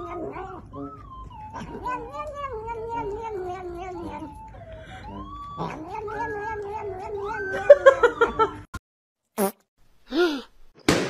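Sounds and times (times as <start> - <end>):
cat crying: 0.0 - 4.5, 5.2 - 7.8.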